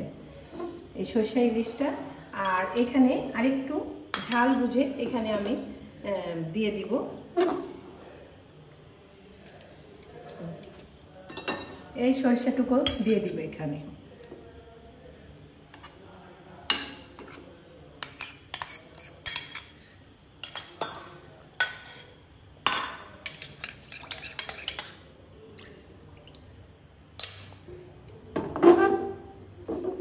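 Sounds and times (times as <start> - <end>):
utensils clinking on cooking pot: 4.1 - 4.8, 11.3 - 11.8, 12.8 - 13.4, 18.0 - 19.7, 20.4 - 25.1, 27.2 - 27.6.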